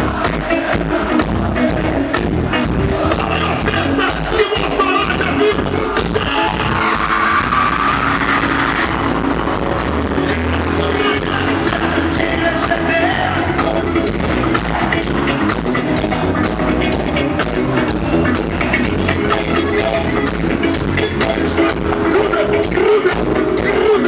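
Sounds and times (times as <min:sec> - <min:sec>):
live gospel band music: 0:00.0 - 0:24.0
steady drum beat: 0:00.0 - 0:24.0
person singing: 0:02.9 - 0:09.0, 0:09.6 - 0:15.3, 0:18.7 - 0:24.0.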